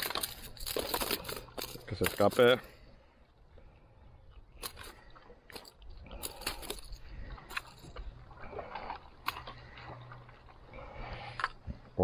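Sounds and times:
water sloshing against paddleboard: 4.2s - 12.0s.

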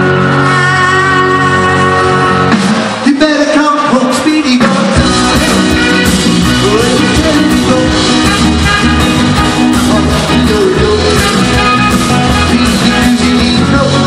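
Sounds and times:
rock band playing: 0.0s - 14.0s.

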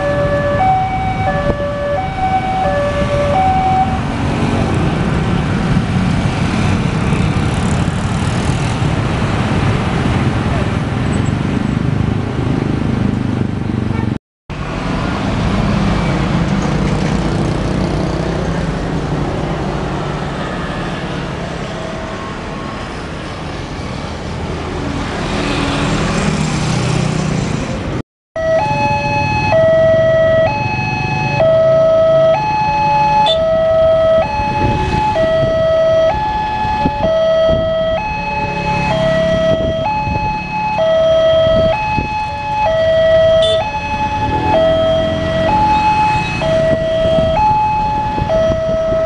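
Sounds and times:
level crossing warning alarms: 0.0s - 4.1s, 28.4s - 49.0s
motorcycles: 0.0s - 49.0s
road traffic passing: 0.0s - 49.0s.

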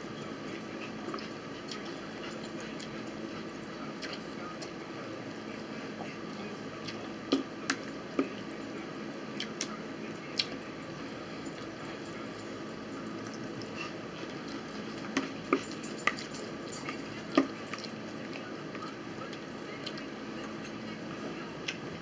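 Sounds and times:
person chewing: 0.8s - 4.8s, 13.2s - 18.0s.

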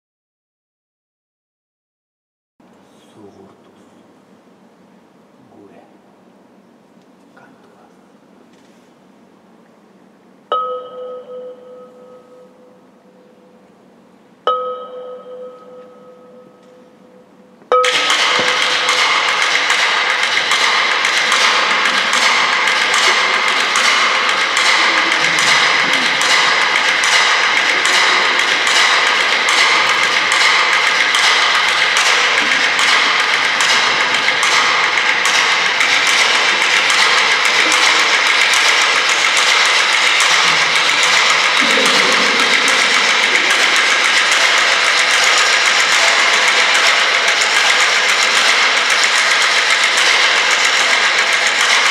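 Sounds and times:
percussion rattling on objects: 17.6s - 51.9s.

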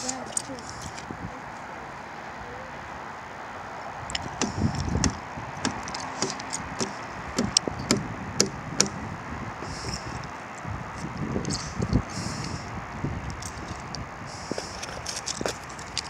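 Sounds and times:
steady background noise: 0.0s - 16.0s
sharp clicks and knocks: 4.1s - 9.0s
low thumps: 4.1s - 9.1s.

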